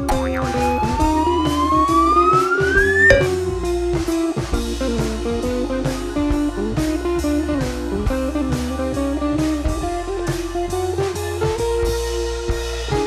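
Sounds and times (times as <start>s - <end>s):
plucked guitar melody: 0.0s - 4.0s
bass: 0.0s - 13.0s
steady drum beat: 0.0s - 13.0s.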